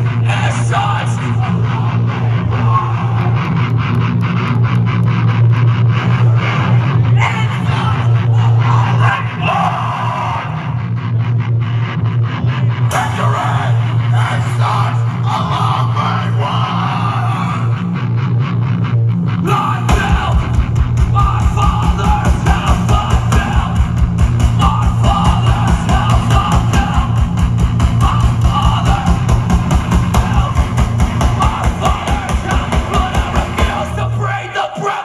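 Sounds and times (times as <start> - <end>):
live heavy rock music: 0.0 - 35.0
fast kick drum pulse: 19.9 - 33.9.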